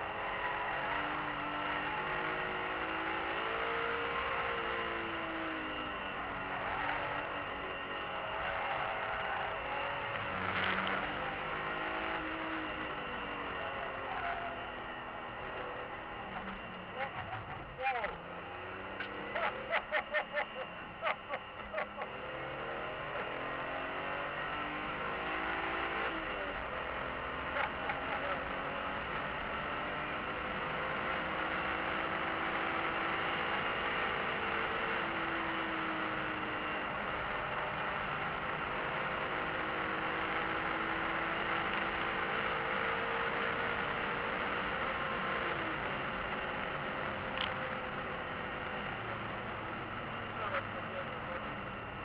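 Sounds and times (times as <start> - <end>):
car engine accelerating: 0.0 - 52.0.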